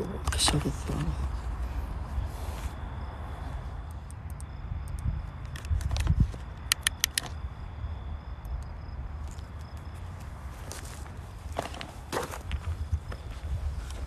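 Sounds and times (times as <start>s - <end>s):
sharp clicks: 3.8s - 7.5s
footsteps over rough ground: 9.2s - 14.0s.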